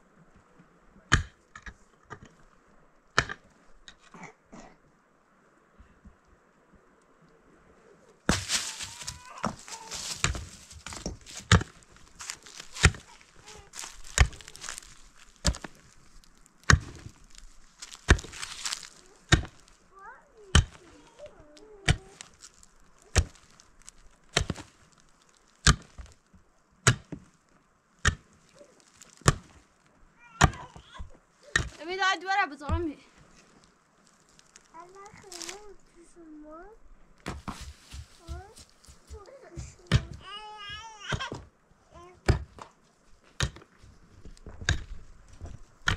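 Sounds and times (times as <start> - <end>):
mattock striking stony earth: 1.1 - 2.3, 3.2 - 3.5, 8.3 - 27.4, 28.0 - 32.0, 34.0 - 35.8, 37.2 - 40.4, 42.2 - 45.9.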